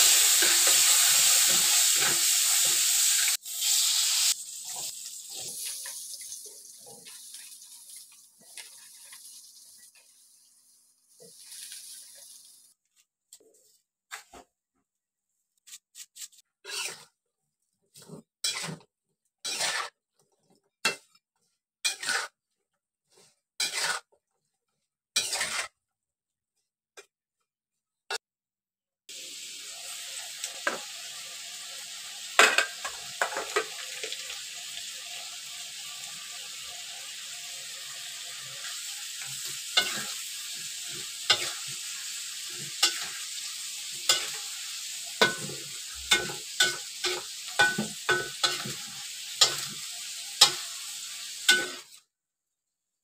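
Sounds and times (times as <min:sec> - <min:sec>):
spatula scraping in wok: 0:00.0 - 0:09.9, 0:15.6 - 0:17.2, 0:17.9 - 0:21.1, 0:21.8 - 0:24.2, 0:25.1 - 0:25.8, 0:37.8 - 0:52.0
spice paste frying in hot oil: 0:00.0 - 0:12.8, 0:19.3 - 0:20.1, 0:21.6 - 0:24.2, 0:25.2 - 0:25.8, 0:29.1 - 0:52.1
faint sizzle: 0:00.0 - 0:13.0, 0:29.1 - 0:52.0
metal clink on pan: 0:46.1 - 0:48.7, 0:51.5 - 0:51.8.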